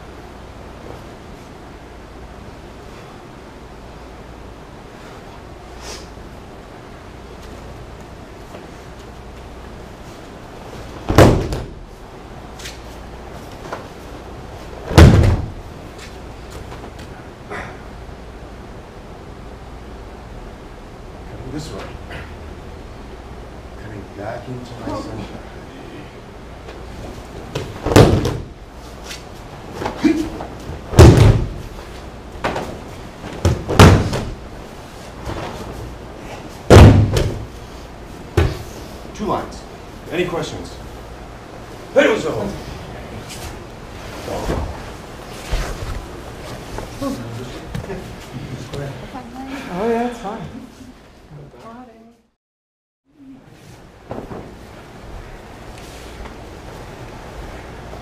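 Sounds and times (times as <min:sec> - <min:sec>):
body thumping on padded mat: 0:11.0 - 0:11.8, 0:14.8 - 0:15.6, 0:27.5 - 0:28.6, 0:29.7 - 0:31.8, 0:32.4 - 0:34.5, 0:36.6 - 0:37.6, 0:38.3 - 0:38.7.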